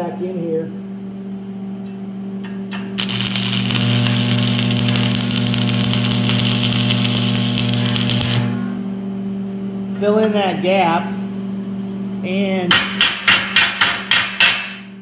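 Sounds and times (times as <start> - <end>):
steady low hum: 0.0 - 12.7
welding arc crackling sizzle: 3.0 - 8.7.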